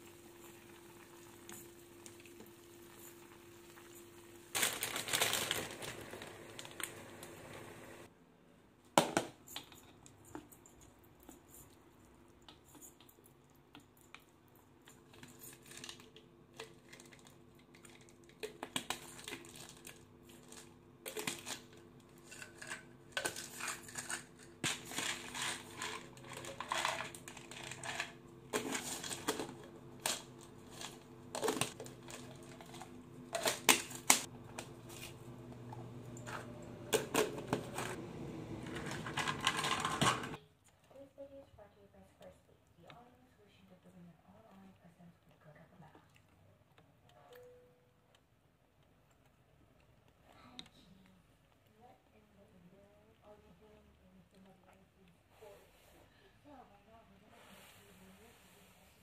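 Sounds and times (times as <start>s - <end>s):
plastic bottles clicking and rustling: 4.5s - 6.9s, 15.2s - 35.0s, 38.6s - 40.4s.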